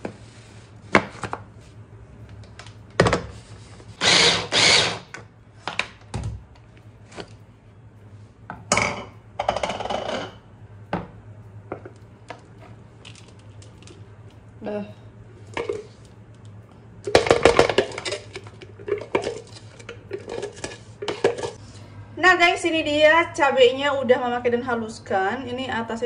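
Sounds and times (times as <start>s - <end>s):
electric food chopper whirring: 4.0s - 5.2s.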